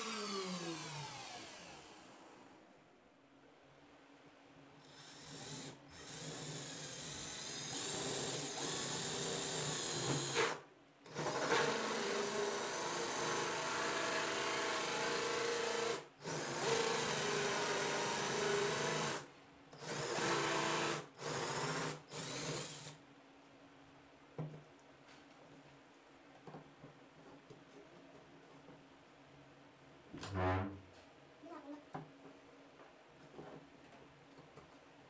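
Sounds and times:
cordless drill boring into wood: 0.0s - 2.1s, 4.9s - 23.0s.

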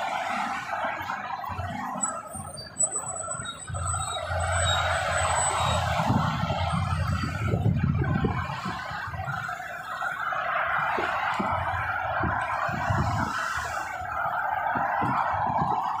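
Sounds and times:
low rumble of large vehicles: 0.0s - 16.0s
traffic rushing past: 0.0s - 16.0s.

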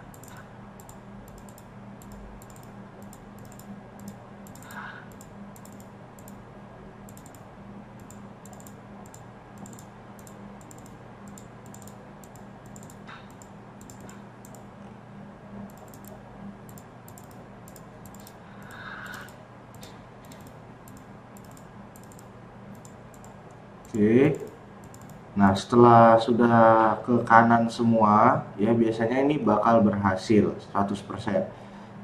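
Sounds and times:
computer keyboard typing: 0.0s - 6.4s, 7.1s - 14.7s, 15.7s - 25.2s
steady low hum: 0.0s - 32.0s.

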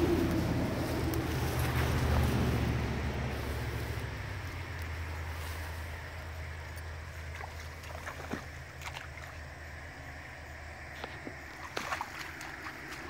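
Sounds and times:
dog splashing in stream: 6.4s - 9.8s, 10.9s - 13.0s.

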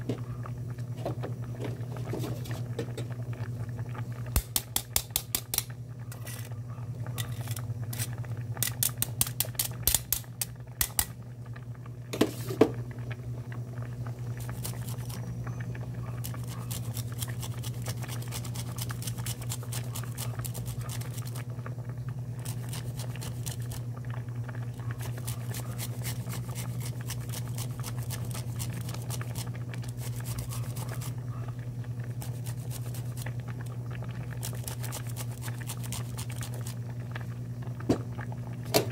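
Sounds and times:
soup simmering and bubbling: 0.0s - 38.9s.

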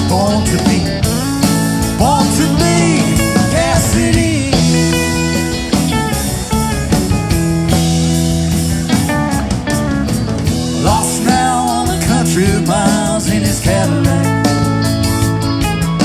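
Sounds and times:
electric guitar bending up: 0.0s - 16.0s
live rock band playing: 0.0s - 16.0s.

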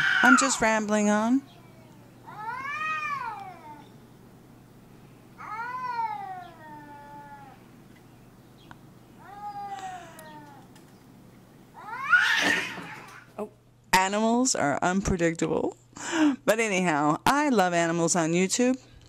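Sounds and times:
cat yowling: 0.0s - 0.7s, 1.4s - 4.0s, 5.4s - 7.6s, 9.2s - 10.7s, 11.8s - 13.3s.

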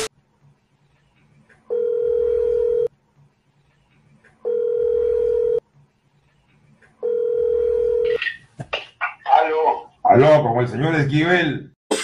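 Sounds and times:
telephone ringback tone beeps: 1.7s - 2.9s, 7.0s - 8.1s.

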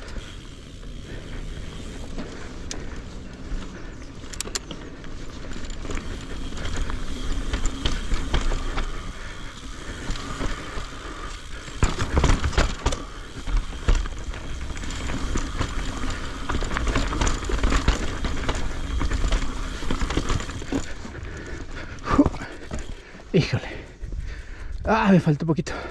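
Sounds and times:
bike chain rattling: 0.0s - 24.8s
bike tyres rolling over dirt: 0.0s - 25.9s.

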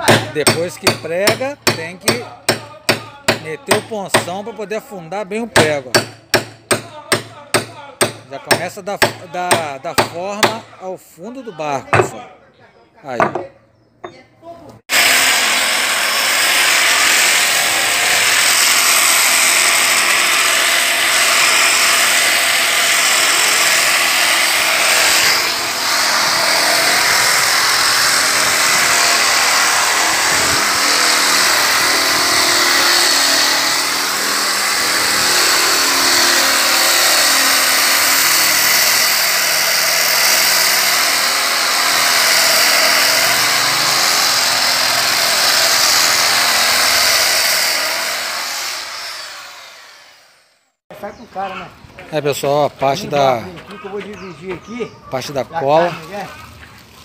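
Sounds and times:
angle grinder sanding wood: 14.9s - 50.5s.

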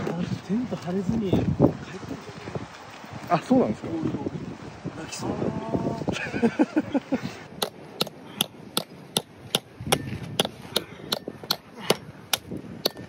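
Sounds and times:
hammer striking metal tent peg: 7.6s - 13.0s.

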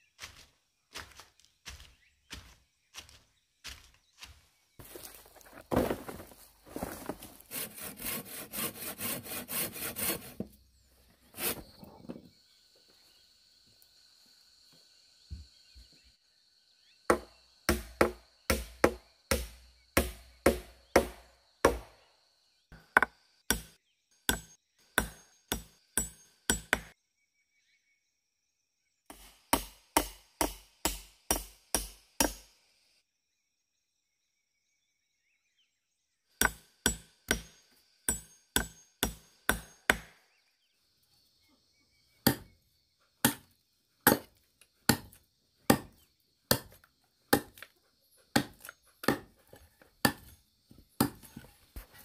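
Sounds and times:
blade chopping wooden pole: 17.1s - 22.0s, 22.8s - 26.9s, 36.4s - 40.2s, 42.2s - 42.5s, 43.2s - 44.3s, 44.9s - 47.7s, 48.3s - 49.4s, 50.0s - 50.3s, 51.0s - 51.4s.

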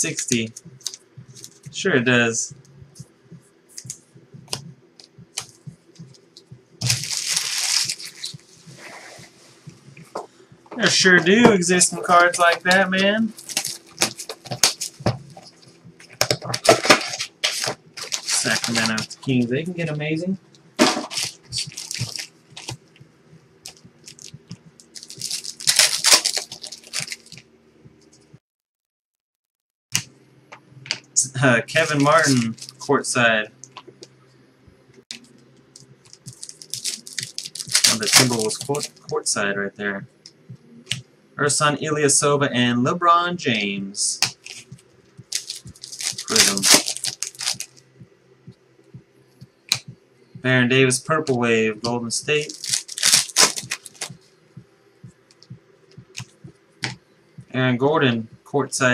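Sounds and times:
loud papery rustle: 6.8s - 9.4s, 16.6s - 19.1s, 25.0s - 27.4s, 36.2s - 39.0s, 45.4s - 47.8s, 52.4s - 54.2s.

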